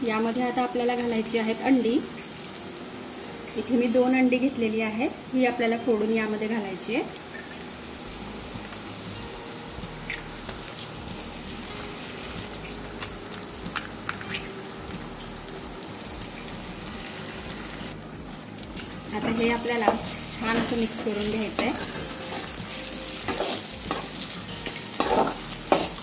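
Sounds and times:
oil sizzling: 0.0s - 26.0s
eggs cracking: 13.0s - 14.5s.

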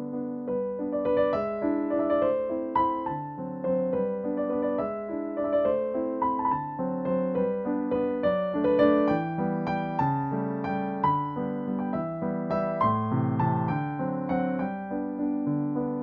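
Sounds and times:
background piano music: 0.0s - 16.0s.

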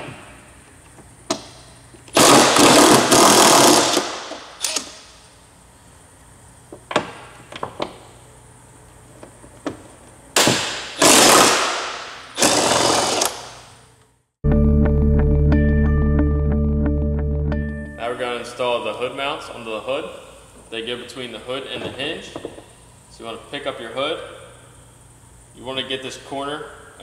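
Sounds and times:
impact wrench hammering: 2.2s - 5.0s.

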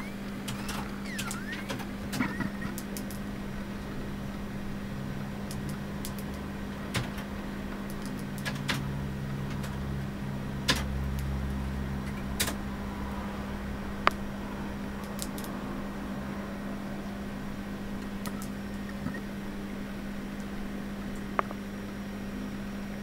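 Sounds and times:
sharp clicks: 0.0s - 3.2s, 5.4s - 8.9s, 10.7s - 12.6s, 15.0s - 15.6s, 18.0s - 19.2s
steady low hum: 0.0s - 23.0s.

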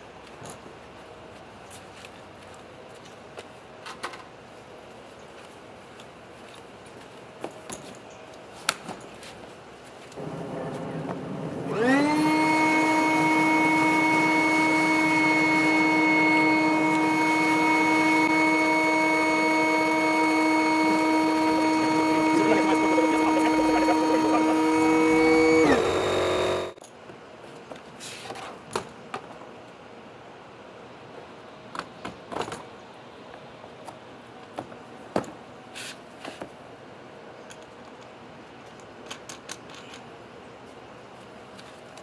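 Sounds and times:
electric air pump whining: 10.2s - 26.8s.

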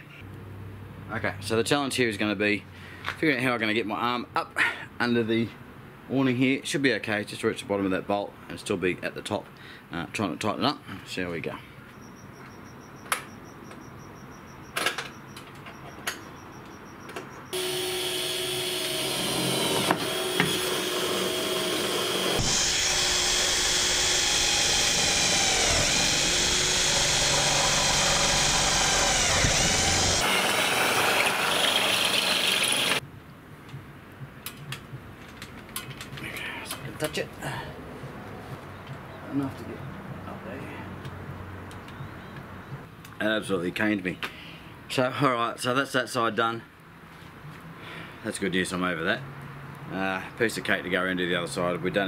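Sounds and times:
cordless drill boring through metal: 17.6s - 33.0s
handling clicks and knocks: 34.4s - 37.2s.

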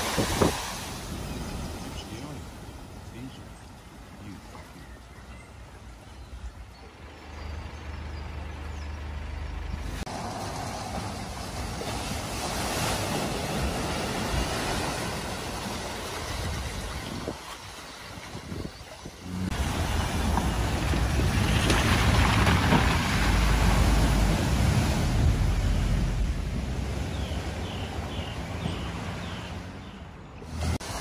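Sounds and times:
water splashing around tyres: 0.0s - 4.0s, 9.8s - 31.0s
low engine rumble: 1.1s - 12.2s, 19.1s - 31.0s.

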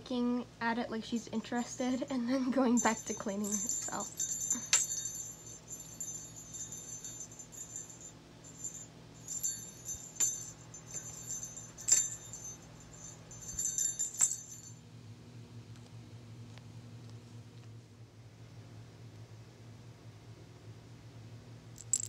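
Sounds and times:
small bell jingling: 2.6s - 14.8s, 21.8s - 22.0s.

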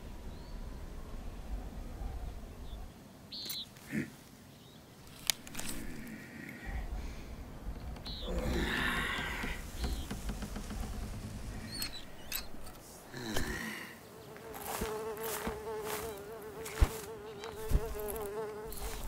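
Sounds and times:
sharp clicks: 7.7s - 12.8s
insect buzzing: 7.8s - 19.0s.

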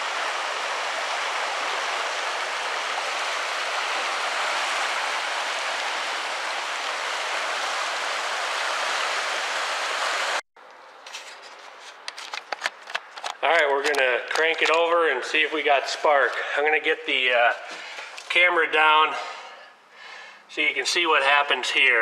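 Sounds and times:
creek water rushing: 0.0s - 10.4s.

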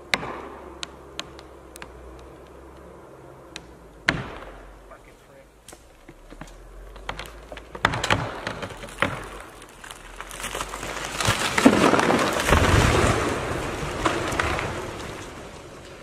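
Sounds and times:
wood cracking: 0.0s - 16.0s
tree trunk crashing to ground: 5.7s - 16.0s
tree crown rushing through branches: 8.2s - 16.0s.

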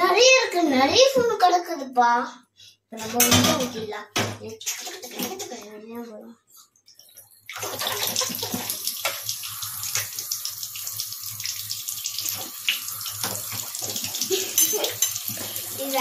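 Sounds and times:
ladle rinsed with splashes: 6.8s - 16.0s
tap water running into sink: 7.4s - 16.0s.

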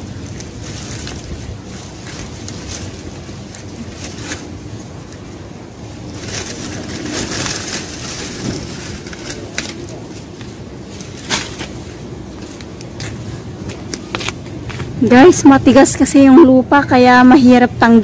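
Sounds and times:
plant leaves rustling: 0.0s - 18.0s
plants snapping: 6.1s - 15.0s.

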